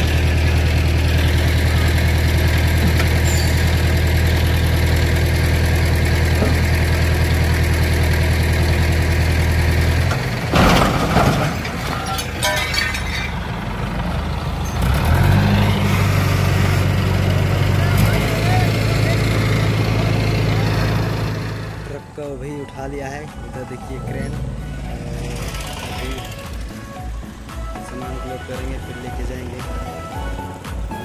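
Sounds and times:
truck crashing with rattling clatter: 0:00.0 - 0:21.9, 0:25.2 - 0:27.0
diesel crane engine running: 0:00.0 - 0:31.0.

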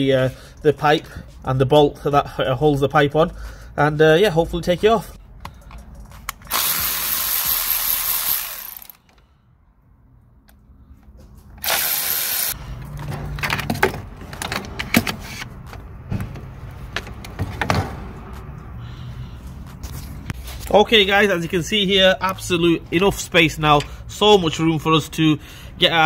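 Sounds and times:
electric ratchet running: 0:06.5 - 0:09.0, 0:11.6 - 0:12.6.

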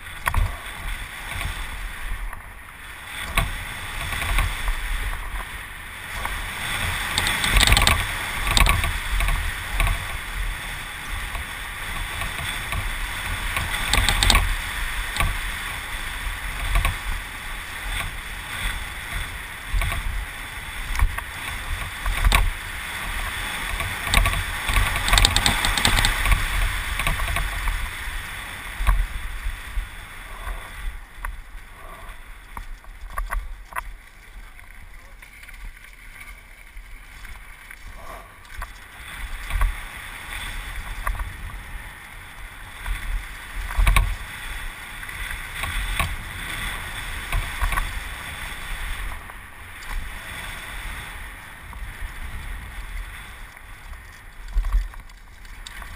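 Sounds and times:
wind rushing over microphone: 0:00.0 - 0:34.4, 0:37.8 - 0:55.9
bike knocking and rattling: 0:00.0 - 0:50.4, 0:51.0 - 0:55.9
bike tyres rolling on dirt: 0:00.0 - 0:55.9.

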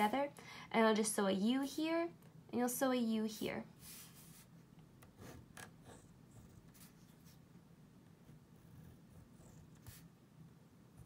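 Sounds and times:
room hum: 0:00.0 - 0:11.0
pen scratching on paper: 0:05.2 - 0:07.4, 0:08.2 - 0:10.1.

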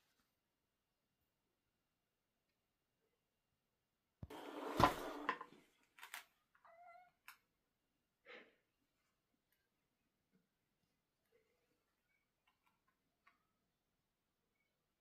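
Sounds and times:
cat meowing: 0:06.6 - 0:07.2.

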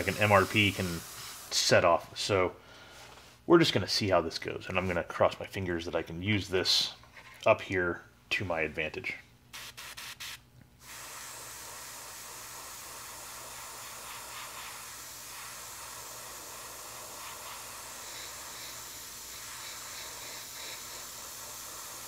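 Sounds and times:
airbrush hissing: 0:00.0 - 0:01.8, 0:09.5 - 0:22.0.

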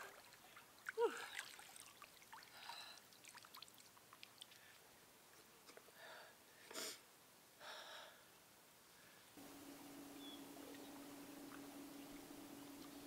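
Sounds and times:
water dripping and trickling: 0:00.0 - 0:04.8, 0:09.6 - 0:13.0.

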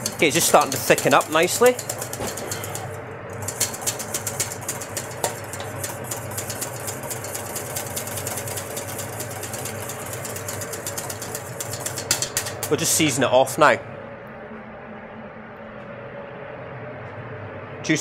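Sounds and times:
whisk clicking against a pan: 0:00.0 - 0:12.9
steady low hum: 0:00.0 - 0:18.0.

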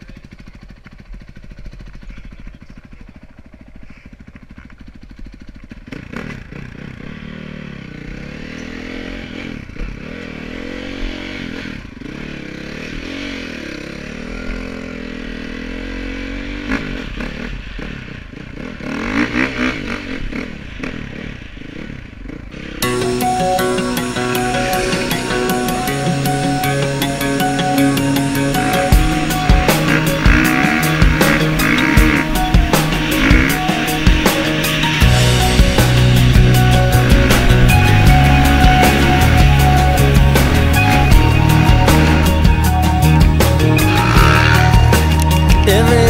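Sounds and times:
dirt bike engine revving: 0:00.0 - 0:46.0
music: 0:22.8 - 0:46.0.

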